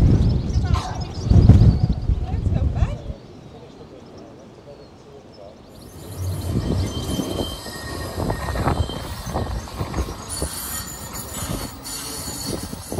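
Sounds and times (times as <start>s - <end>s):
tram rumbling on rails: 5.6s - 12.9s
high wheel squeal: 5.7s - 12.9s.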